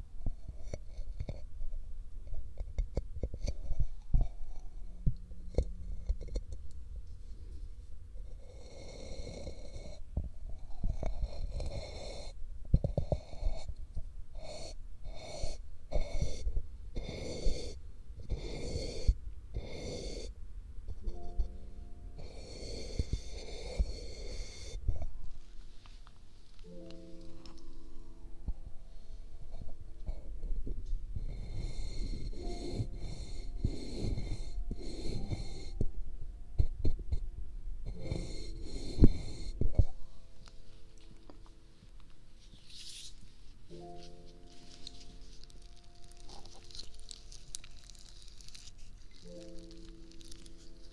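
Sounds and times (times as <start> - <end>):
sticky material squishing: 44.0 - 50.9.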